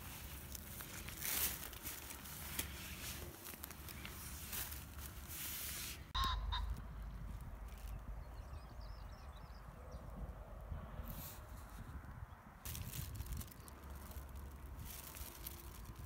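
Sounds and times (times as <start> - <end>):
plastic bag crinkling: 0.0 - 6.1, 12.7 - 16.0.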